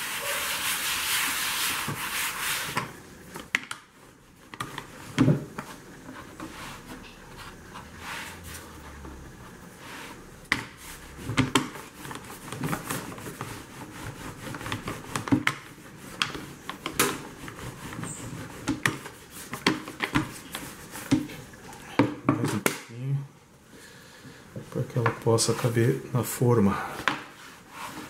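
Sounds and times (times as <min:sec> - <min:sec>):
rolling pin rubbing on dough: 0:00.0 - 0:02.8, 0:04.0 - 0:09.0, 0:09.7 - 0:21.5, 0:27.3 - 0:28.0.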